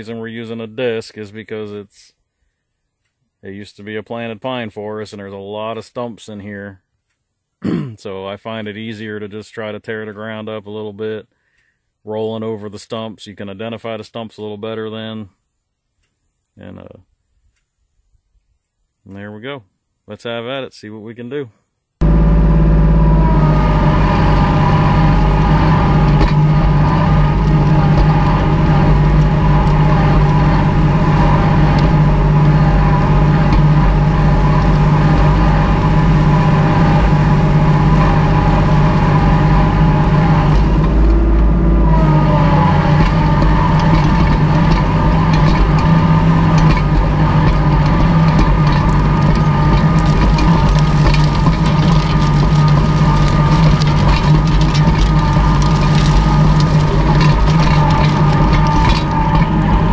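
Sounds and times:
tractor diesel engine running: 22.0 - 59.9.

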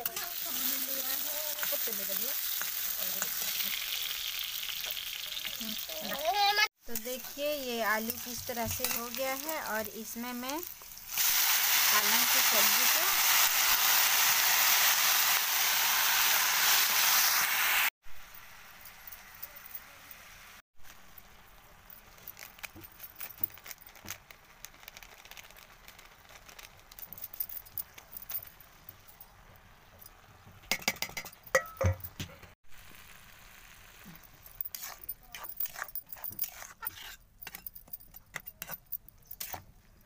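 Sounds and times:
metal spatula scraping a pan: 7.0 - 9.6, 34.6 - 39.7
clatter of metal clinks: 21.9 - 32.2, 34.4 - 39.7.

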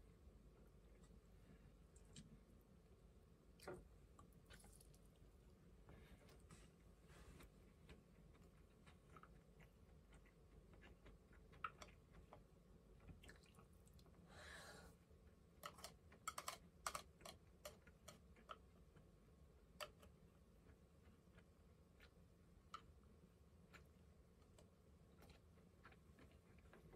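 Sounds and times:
quiet chewing: 0.6 - 2.4, 3.5 - 14.3, 15.6 - 19.2, 19.8 - 26.9
chopsticks clicking on plastic: 15.6 - 18.6.

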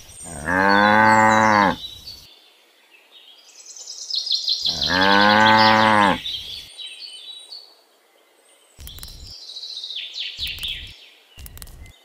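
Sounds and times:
birds chirping faintly: 0.0 - 12.0
cow mooing: 0.3 - 1.8, 4.7 - 6.2.

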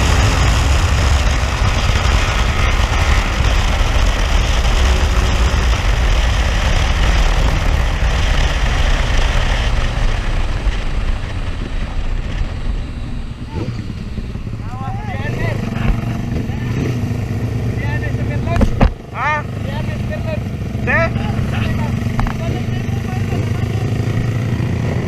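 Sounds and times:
wind rush on microphone: 0.0 - 19.0
motorcycle engine running: 0.0 - 25.0.

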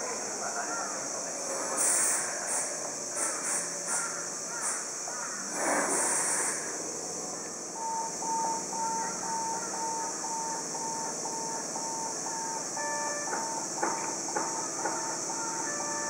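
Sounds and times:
steady high hiss: 0.0 - 16.0
electronic warning beeps: 7.7 - 16.0.

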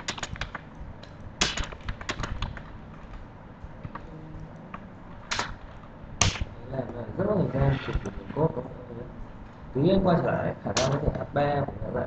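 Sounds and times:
keyboard typing: 0.0 - 3.2.

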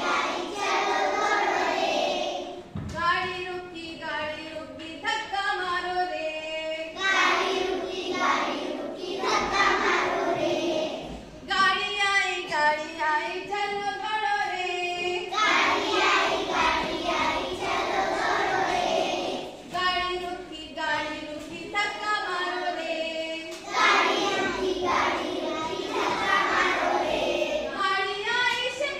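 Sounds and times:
children singing in chorus: 0.0 - 2.7, 6.9 - 11.4, 15.2 - 19.8, 22.6 - 27.8.

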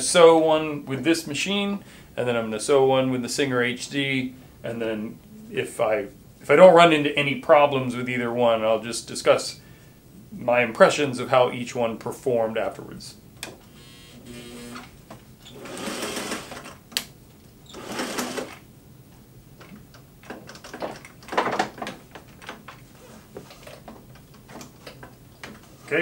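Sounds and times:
sewing machine running: 13.8 - 14.9, 15.5 - 16.8, 17.7 - 18.6.

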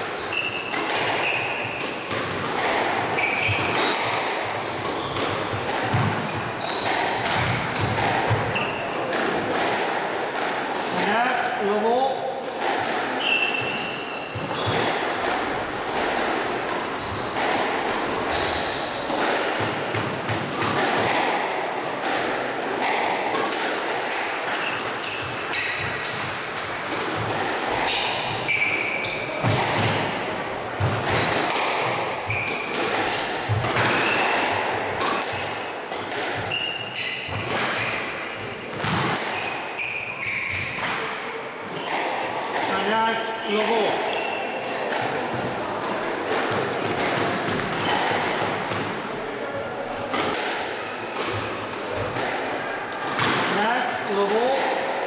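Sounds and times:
shoes squeaking on wooden floor: 0.0 - 4.2, 6.3 - 9.0, 13.2 - 19.8, 24.6 - 26.1, 27.8 - 29.6, 32.2 - 35.8, 39.7 - 40.9, 42.7 - 44.7
ball hitting walls: 0.0 - 11.2, 12.5 - 39.6
racket striking squash ball: 0.0 - 49.3, 50.1 - 55.0.

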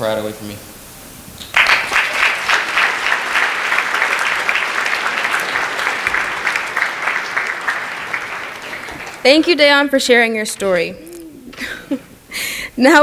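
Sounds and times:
audience applauding: 1.4 - 11.2.

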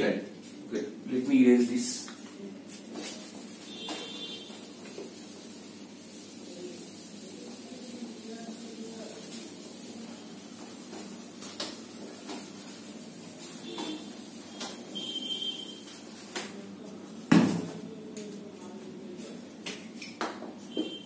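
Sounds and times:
duster wiping a whiteboard: 1.8 - 17.3.

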